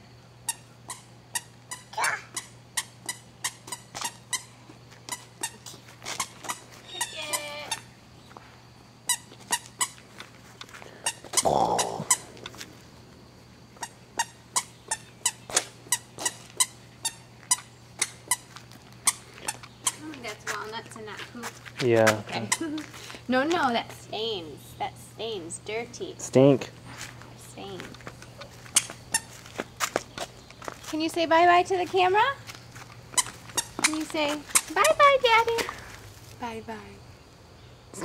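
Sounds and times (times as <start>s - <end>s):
squeaky shoes squeaking: 0.5s - 7.9s, 9.1s - 11.4s, 13.8s - 23.0s, 27.7s - 31.2s, 32.0s - 35.7s.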